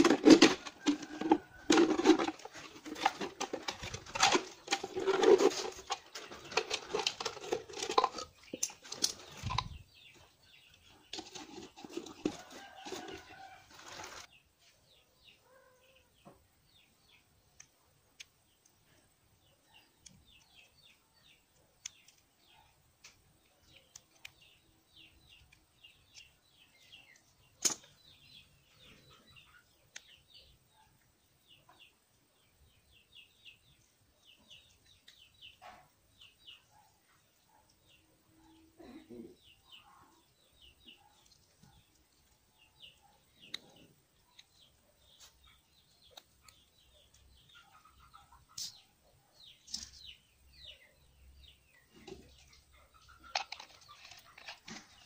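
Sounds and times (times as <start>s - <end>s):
birds chirping faintly: 0.0s - 55.0s
plastic clicking: 27.6s - 28.0s, 53.2s - 55.0s.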